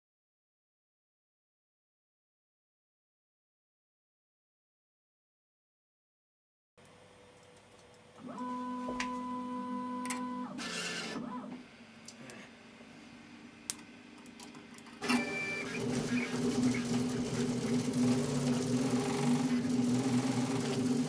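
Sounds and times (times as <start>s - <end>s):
printer motor whine: 8.2s - 11.7s, 15.0s - 21.0s
shifting motor tones: 15.0s - 21.0s.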